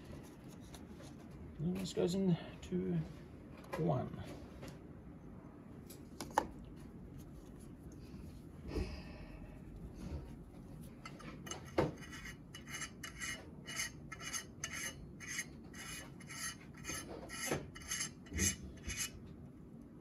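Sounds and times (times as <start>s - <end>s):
rasping rubs: 12.0s - 19.1s.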